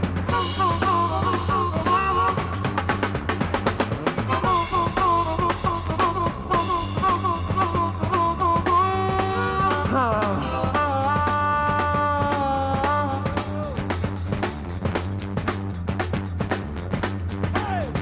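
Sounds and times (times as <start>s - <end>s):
rock drums and bass: 0.0s - 18.0s
harmonica riff: 0.2s - 14.2s.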